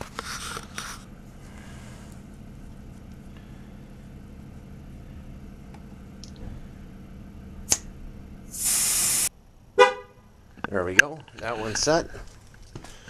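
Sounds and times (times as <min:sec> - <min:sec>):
faint steady hum: 0:00.0 - 0:13.0
air hissing from tyre valve: 0:08.5 - 0:09.3.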